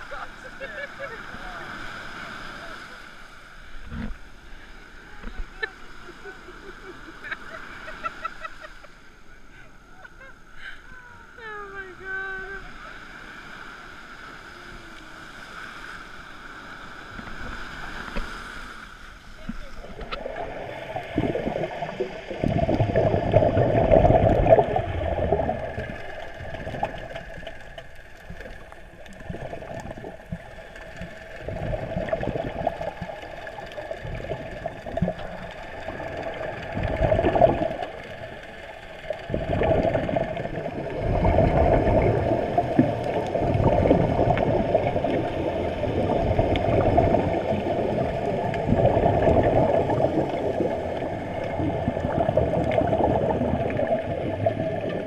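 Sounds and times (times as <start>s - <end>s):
underwater regulator bubbling: 19.4s - 55.0s.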